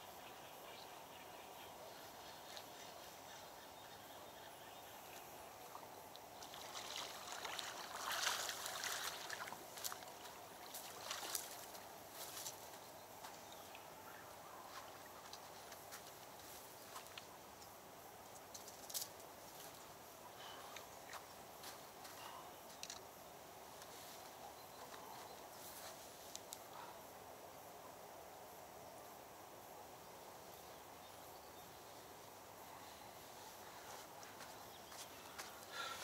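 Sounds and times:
faint water splashing: 5.0 - 17.4.

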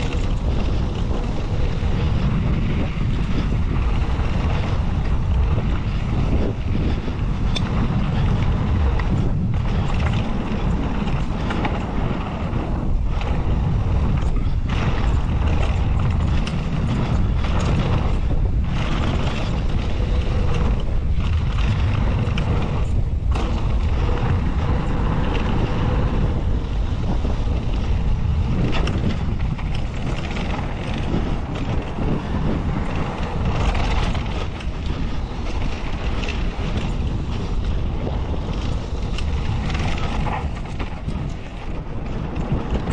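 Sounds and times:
bike tyres rushing on dirt: 0.0 - 42.9
wind buffeting microphone: 0.0 - 42.9.

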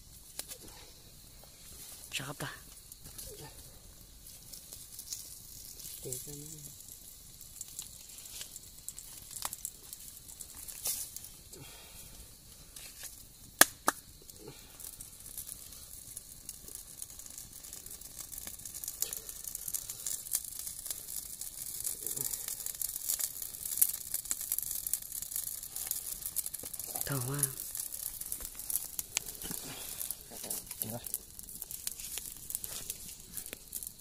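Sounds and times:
fire popping: 0.0 - 34.0
wood fire crackling and hissing: 0.0 - 34.0.

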